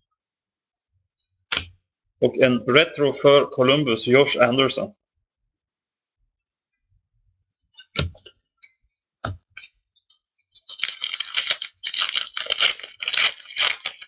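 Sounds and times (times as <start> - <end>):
foil wrapper tearing and crinkling: 10.5 - 14.0.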